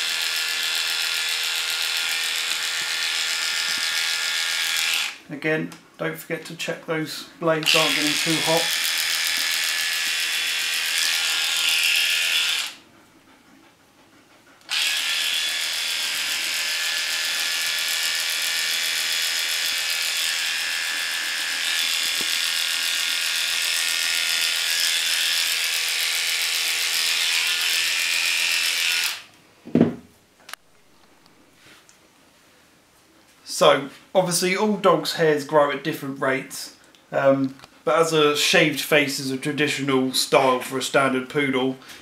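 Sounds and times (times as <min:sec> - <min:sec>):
electric clippers buzzing: 0:00.0 - 0:05.2, 0:07.6 - 0:12.8, 0:14.7 - 0:29.3.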